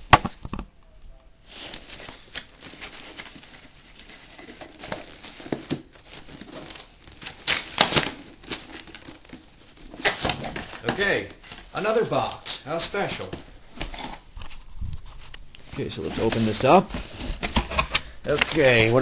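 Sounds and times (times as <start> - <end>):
cardboard box rustling and scraping: 12.8 - 19.0.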